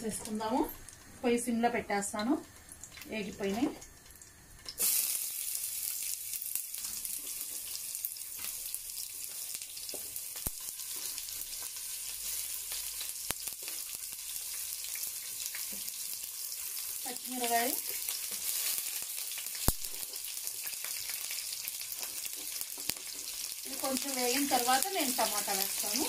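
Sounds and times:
onions sizzling in a pan: 0:00.0 - 0:26.0.

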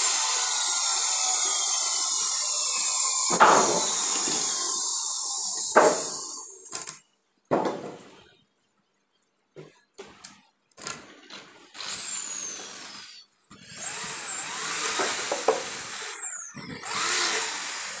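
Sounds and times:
power tool motor whining: 0:00.0 - 0:06.9, 0:11.8 - 0:18.0.

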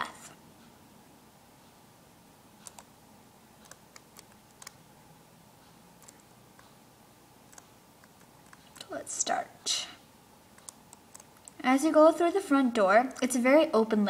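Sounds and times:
low room hiss: 0:00.0 - 0:14.0
keyboard keys clicking: 0:02.6 - 0:02.9, 0:03.6 - 0:04.8, 0:06.0 - 0:06.7, 0:07.5 - 0:08.9, 0:10.6 - 0:11.6.

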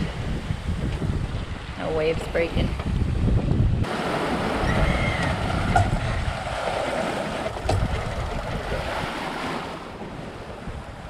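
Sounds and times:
wind buffeting microphone: 0:00.0 - 0:11.0
boat bow wave: 0:03.8 - 0:11.0
waves rushing: 0:03.8 - 0:11.0
sharp knocks: 0:07.5 - 0:08.2.

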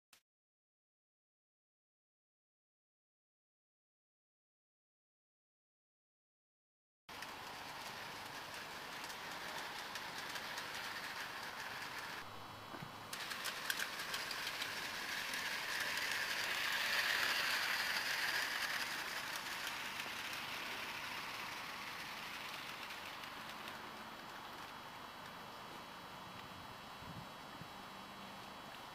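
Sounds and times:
model train wheels rolling on rail: 0:07.1 - 0:26.6.

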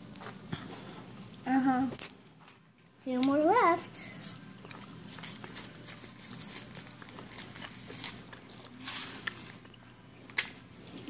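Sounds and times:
foil wrapper crinkling: 0:04.2 - 0:09.8.

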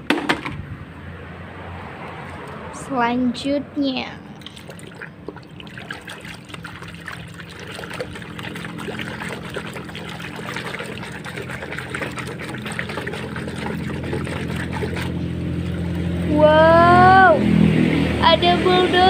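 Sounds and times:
water sloshing and splashing in tub: 0:01.8 - 0:02.9, 0:04.3 - 0:18.1
steady low hum: 0:02.3 - 0:19.0.

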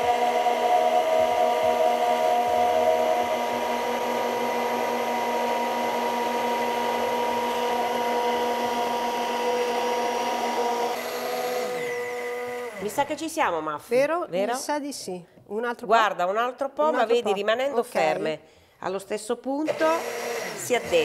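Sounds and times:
stick blender motor whine: 0:00.0 - 0:13.4, 0:19.7 - 0:21.0.

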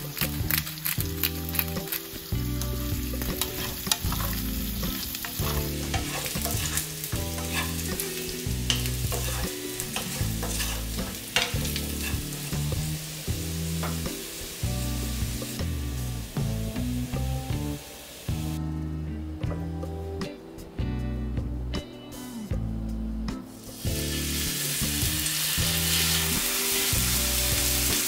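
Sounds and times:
potatoes sizzling in hot oil: 0:00.0 - 0:18.6, 0:23.6 - 0:28.0
wooden spatula scraping pan: 0:05.4 - 0:08.1, 0:08.7 - 0:12.4.

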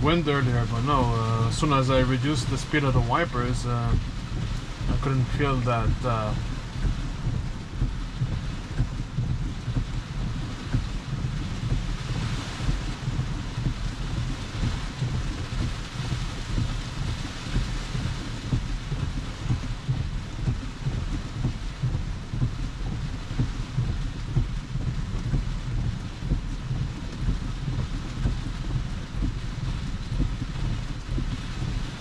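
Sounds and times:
heavy rain on car roof: 0:00.0 - 0:32.0
low fluttering rumble: 0:00.0 - 0:32.0.

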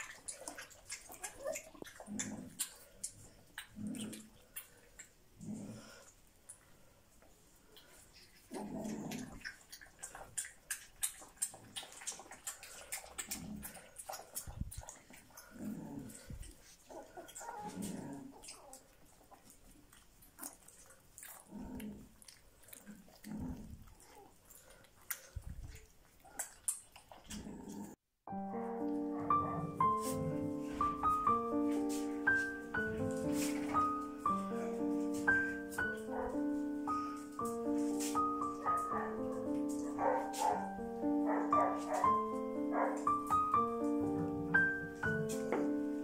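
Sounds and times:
puppies grunting and whimpering: 0:00.0 - 0:06.2, 0:07.8 - 0:28.0, 0:28.8 - 0:46.0
piano music: 0:28.3 - 0:46.0.

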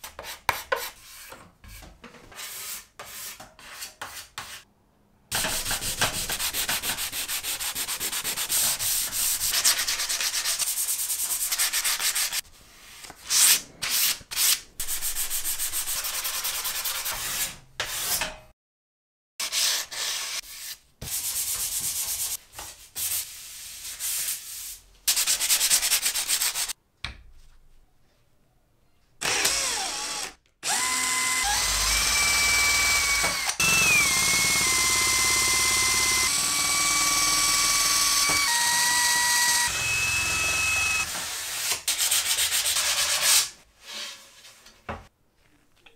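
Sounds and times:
sandpaper scrubbing wood: 0:05.4 - 0:12.4, 0:23.0 - 0:26.8
drill motor whine: 0:29.2 - 0:41.1.

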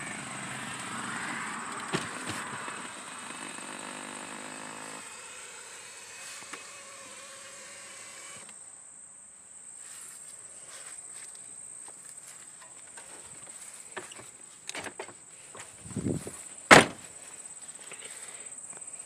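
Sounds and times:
crickets trilling: 0:00.1 - 0:19.0
car door shutting: 0:01.6 - 0:03.0, 0:16.7 - 0:17.0.

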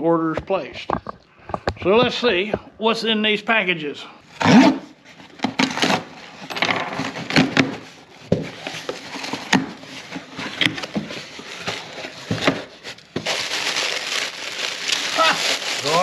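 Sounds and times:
cardboard and tape rustling and tearing: 0:04.4 - 0:16.0.

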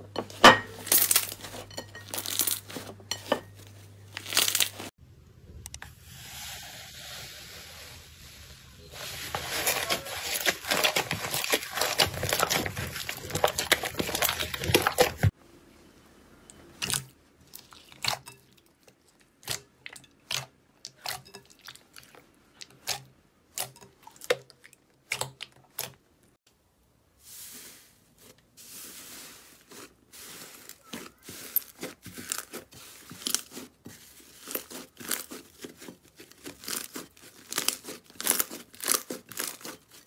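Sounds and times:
soft hiss of pressed slime: 0:05.9 - 0:08.8, 0:27.0 - 0:31.6
slime crackling: 0:09.1 - 0:15.3, 0:28.9 - 0:40.0.

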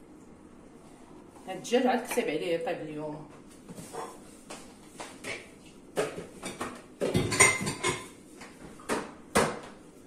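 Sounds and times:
kitchenware knocking and clinking: 0:06.0 - 0:08.2.

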